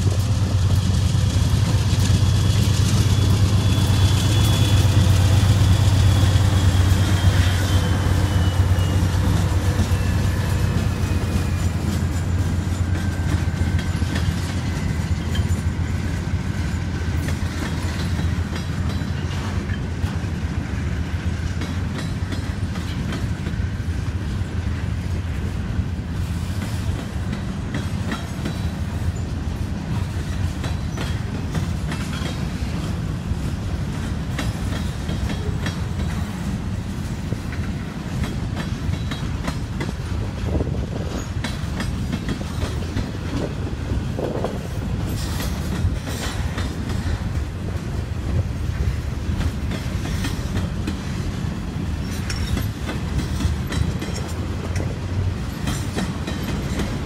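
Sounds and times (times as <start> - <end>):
freight train rumbling past: 0.0 - 57.0
wheels clicking over rail joints: 0.0 - 57.0.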